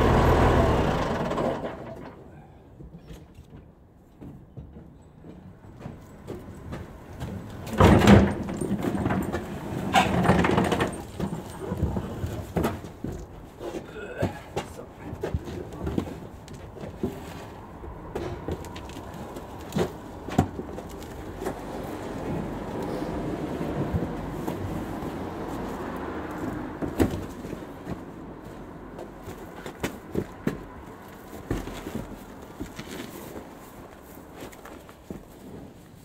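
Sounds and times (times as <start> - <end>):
bin casters rumbling on concrete: 0.0 - 36.0
bin knocking and clattering: 7.6 - 13.2.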